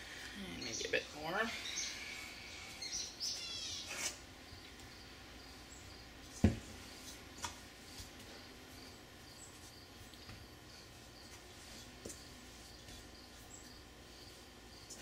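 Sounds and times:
birds chirping: 0:00.3 - 0:06.1.

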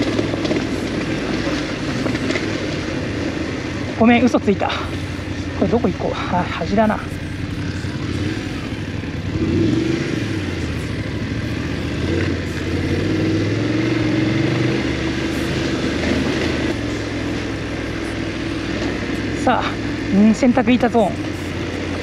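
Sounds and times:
motorcycle engine revving: 0:00.0 - 0:22.0
steady rushing noise: 0:00.0 - 0:22.0.

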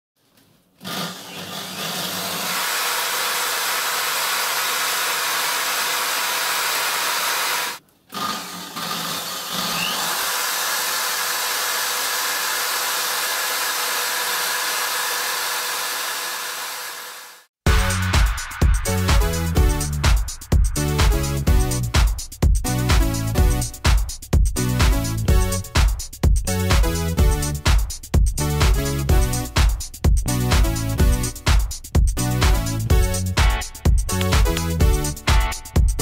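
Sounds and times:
small electric motor whirring: 0:00.8 - 0:17.5.

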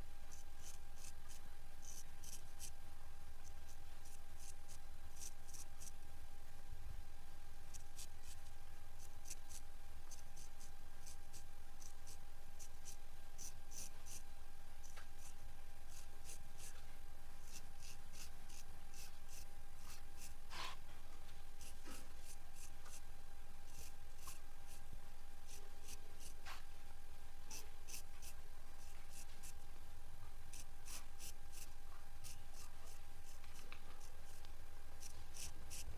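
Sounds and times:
razor scraping hair: 0:00.3 - 0:02.7, 0:04.0 - 0:05.9, 0:07.7 - 0:14.2, 0:14.8 - 0:16.7, 0:17.4 - 0:20.8, 0:21.6 - 0:23.0, 0:23.7 - 0:24.8, 0:25.5 - 0:26.5, 0:27.5 - 0:29.6, 0:30.5 - 0:35.9.

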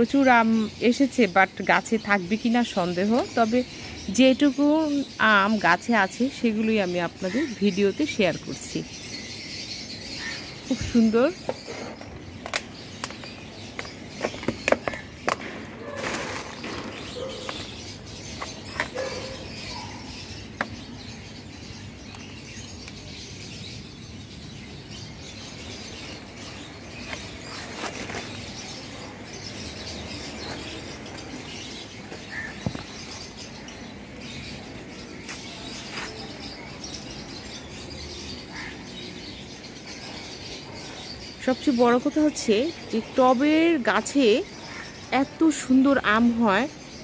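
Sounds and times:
outdoor background noise: 0:00.0 - 0:47.0
small birds chirping: 0:00.0 - 0:47.0.

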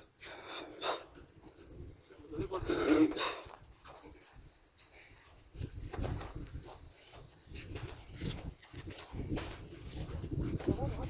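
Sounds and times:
insects chirring: 0:00.0 - 0:11.0
wind rumble on microphone: 0:05.4 - 0:11.0.

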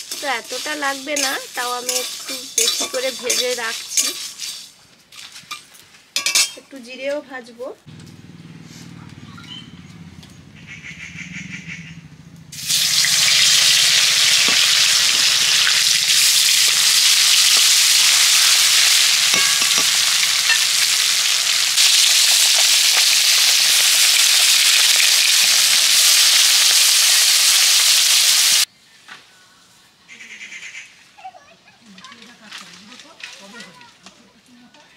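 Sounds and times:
fish frying in hot oil: 0:00.0 - 0:04.6, 0:12.6 - 0:28.7.

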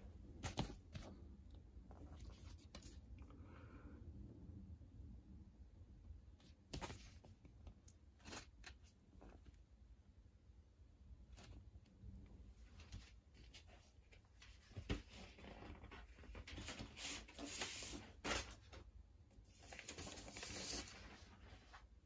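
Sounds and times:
paper rustling and sliding: 0:12.6 - 0:22.0.

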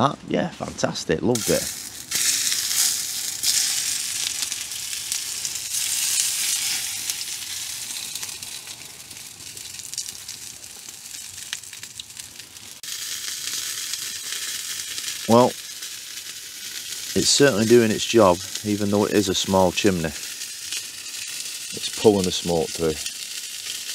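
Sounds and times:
food sizzling in a frying pan: 0:01.4 - 0:23.9.

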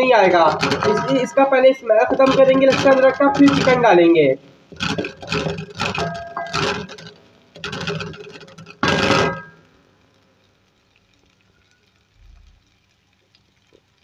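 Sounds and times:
spatula scraping a metal pan: 0:00.4 - 0:01.4, 0:02.1 - 0:04.0, 0:04.7 - 0:09.5.

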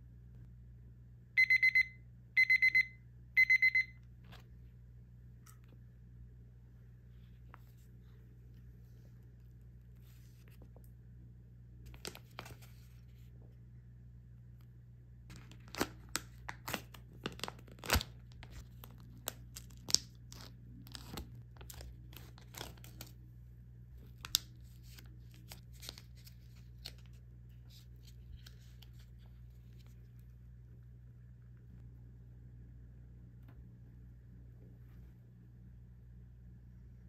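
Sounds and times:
plastic wrapper tearing and crinkling: 0:11.9 - 0:12.9, 0:15.3 - 0:23.2, 0:24.1 - 0:29.2.

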